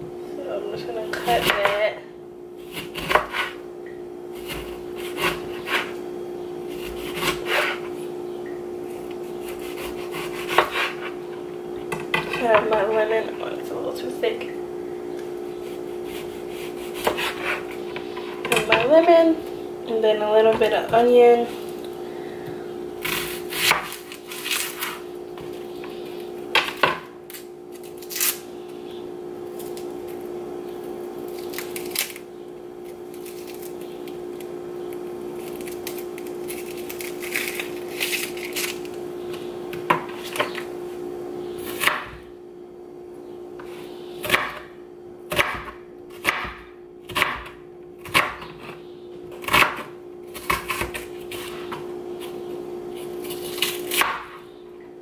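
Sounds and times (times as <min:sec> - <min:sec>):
steady hum: 0:00.0 - 0:55.0
knife chopping on cutting board: 0:02.7 - 0:03.6, 0:09.4 - 0:11.1, 0:16.1 - 0:17.7, 0:44.2 - 0:44.6, 0:45.3 - 0:48.7.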